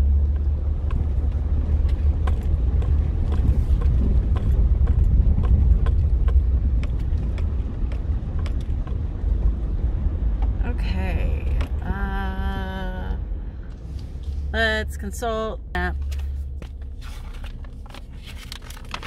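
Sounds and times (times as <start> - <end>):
engine and tyres rumbling: 0.0 - 19.0
sharp clicks and knocks: 0.2 - 10.6, 11.4 - 11.9.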